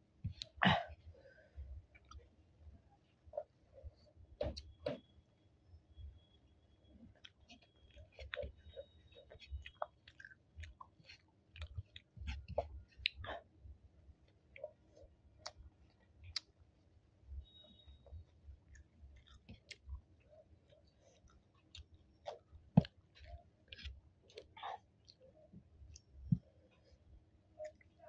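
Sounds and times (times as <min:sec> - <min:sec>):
close chewing with mouth clicks: 0:07.1 - 0:13.5, 0:14.2 - 0:16.7, 0:17.4 - 0:27.0, 0:27.6 - 0:28.0.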